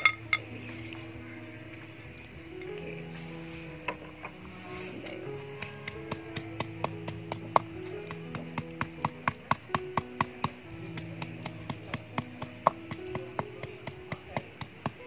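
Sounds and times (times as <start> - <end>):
soft background music: 0.0 - 15.0
stone pestle pounding in mortar: 5.6 - 15.0.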